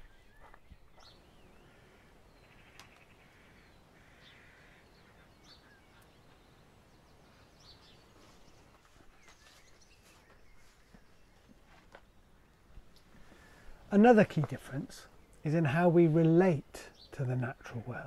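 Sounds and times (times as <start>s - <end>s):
bird trills: 0.0s - 6.4s
distant birdsong chirps: 0.0s - 18.0s
quiet background hiss: 0.0s - 18.0s.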